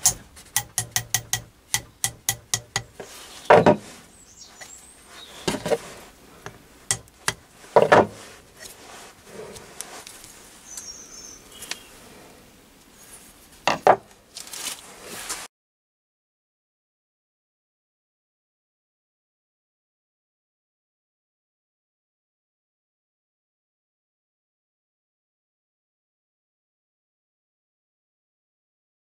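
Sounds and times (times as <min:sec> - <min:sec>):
mallet tapping on metal: 0:00.0 - 0:03.0, 0:06.9 - 0:07.4
knocks and clunks on bench: 0:00.1 - 0:03.9, 0:06.9 - 0:08.2, 0:13.7 - 0:14.1.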